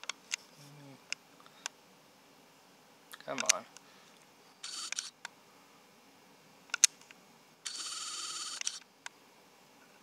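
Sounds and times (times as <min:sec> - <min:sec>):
camera autofocus motor whirring: 0:04.6 - 0:05.2, 0:07.6 - 0:08.9
sharp camera clicks: 0:04.6 - 0:05.2, 0:07.6 - 0:08.9.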